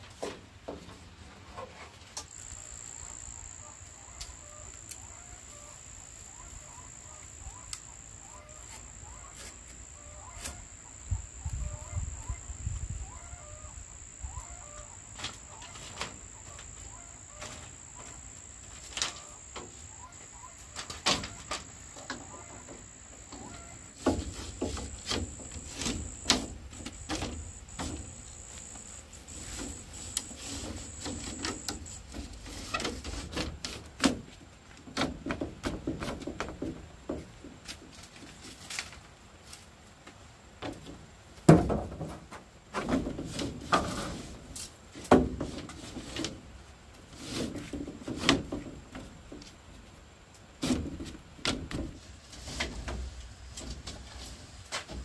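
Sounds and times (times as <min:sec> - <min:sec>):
high-pitched insect drone: 0:02.3 - 0:23.8.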